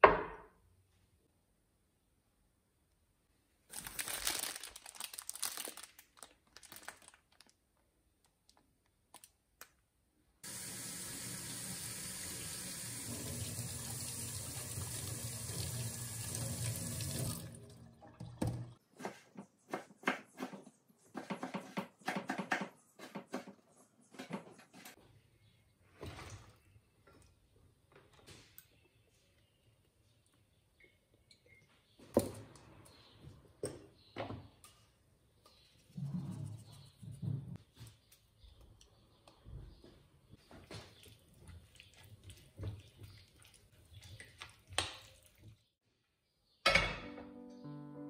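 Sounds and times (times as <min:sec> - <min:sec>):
kitchen tap running: 0:10.4 - 0:18.8.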